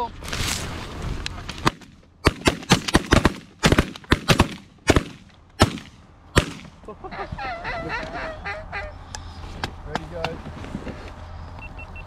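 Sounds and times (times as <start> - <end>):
shotgun blasts: 1.6 - 6.8.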